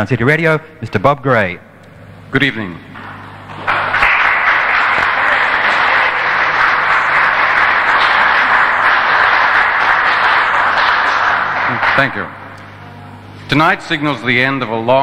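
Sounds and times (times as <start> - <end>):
audience applauding: 3.0 - 12.6.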